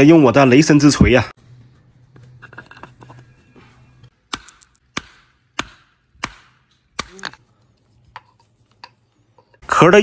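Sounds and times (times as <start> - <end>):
hammer cracking shell on stone: 4.2 - 7.4.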